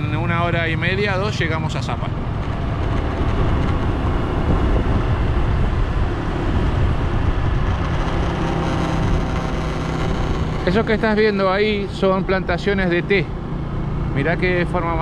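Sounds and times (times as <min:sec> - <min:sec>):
wind buffeting microphone: 0:02.0 - 0:11.2
scooter engine running: 0:02.1 - 0:14.7.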